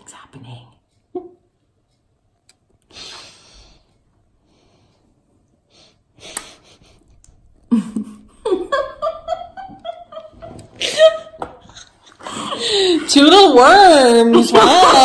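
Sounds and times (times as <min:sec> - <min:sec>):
woman laughing: 0:01.1 - 0:01.5, 0:07.7 - 0:15.0.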